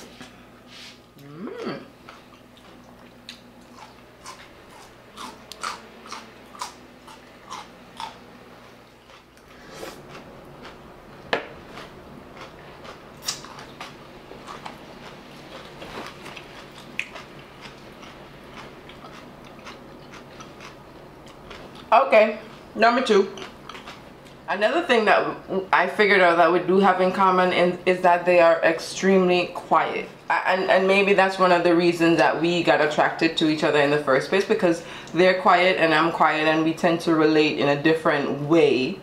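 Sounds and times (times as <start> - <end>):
person chewing crunchy vegetables: 1.1 - 8.2, 8.9 - 24.4.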